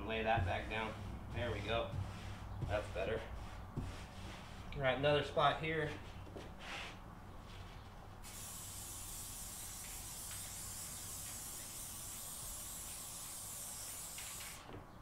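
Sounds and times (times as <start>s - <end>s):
aerosol spray hissing: 8.2s - 14.6s.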